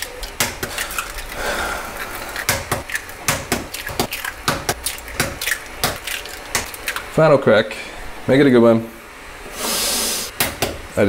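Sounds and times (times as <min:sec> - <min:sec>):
eggs cracking on wok rim: 0:00.0 - 0:07.1
short hiss: 0:09.5 - 0:10.3.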